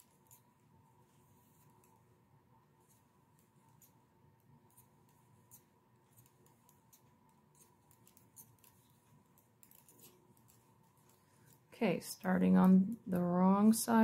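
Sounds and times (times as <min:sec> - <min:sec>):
knitting needles clicking: 0:04.6 - 0:13.6.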